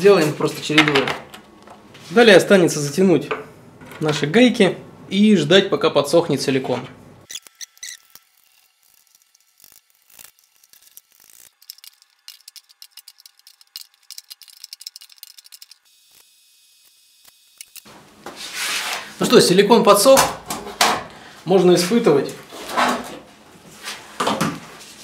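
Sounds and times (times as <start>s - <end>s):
rapid ratcheting clicks: 7.3s - 16.3s, 17.2s - 17.9s.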